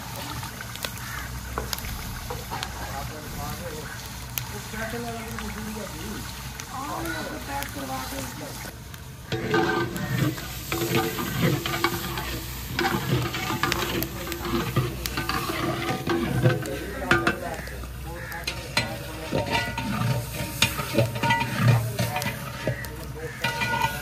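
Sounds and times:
metal ladle scraping metal pot: 9.3s - 24.0s.

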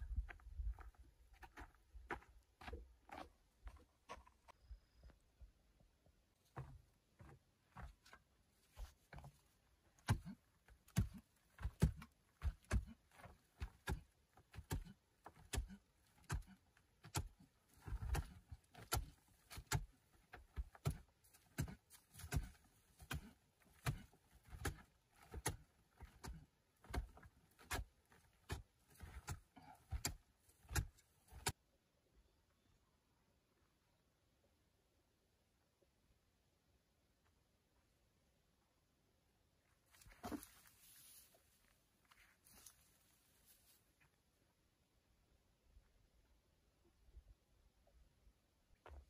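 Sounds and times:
shovel striking clay wall: 9.9s - 31.6s.

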